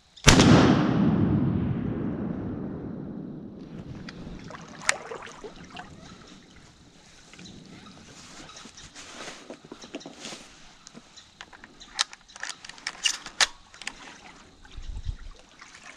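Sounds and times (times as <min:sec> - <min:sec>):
shotgun report echo: 0:00.2 - 0:04.3
rustling: 0:03.6 - 0:14.5.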